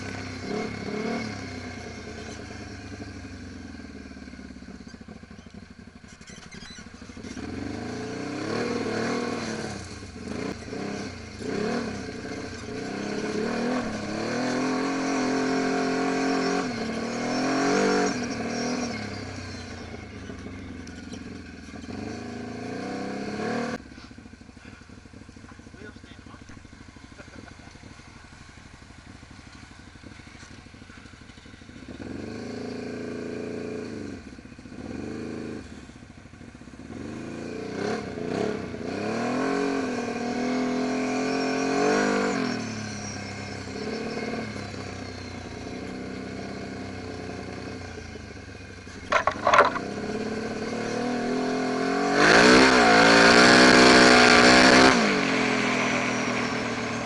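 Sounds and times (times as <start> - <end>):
engine revving: 0.0 - 57.0
sharp knocks: 49.1 - 49.9.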